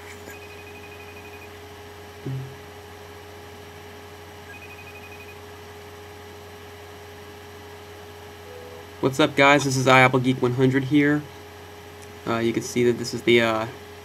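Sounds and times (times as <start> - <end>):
electrical hum: 0.0 - 14.0
faint trilling ring tone: 0.3 - 1.6, 4.5 - 5.5, 8.4 - 9.0
short low thump: 2.2 - 2.6.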